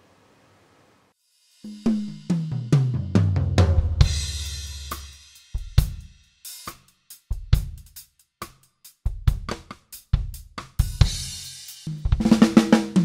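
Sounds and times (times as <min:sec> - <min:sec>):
bass drum: 0:01.8 - 0:06.2, 0:09.1 - 0:13.0
kick and snare beat: 0:01.9 - 0:13.0.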